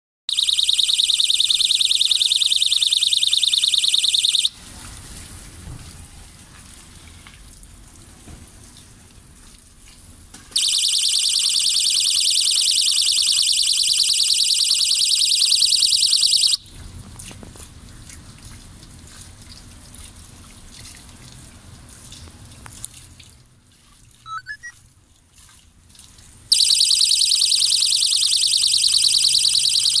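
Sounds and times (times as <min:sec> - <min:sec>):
high-pitched pulsing electronic tone: 0:22.8 - 0:23.3, 0:24.3 - 0:24.7.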